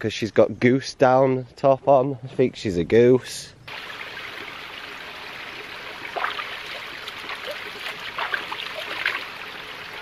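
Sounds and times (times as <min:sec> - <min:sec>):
stream trickling over stones: 0:03.7 - 0:10.0
hand splashing water: 0:06.1 - 0:09.3.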